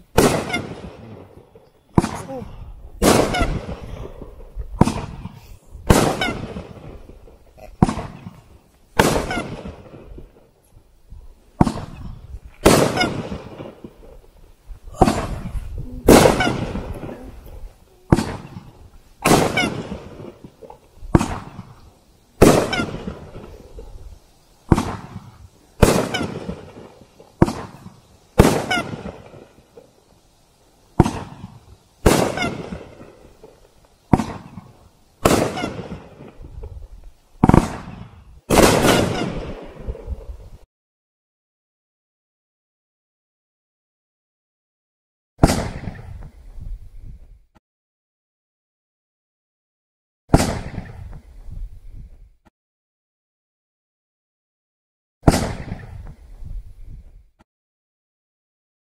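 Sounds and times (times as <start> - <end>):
firework bursts banging: 0.1 - 2.3, 3.0 - 10.5, 11.5 - 14.4, 15.0 - 29.9, 30.9 - 40.2, 45.4 - 46.2, 55.2 - 56.1.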